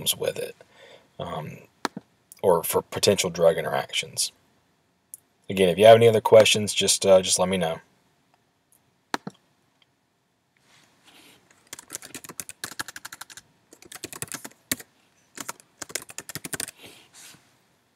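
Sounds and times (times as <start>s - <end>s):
sharp clicks: 9.1s - 9.4s
computer keyboard typing: 11.6s - 16.8s.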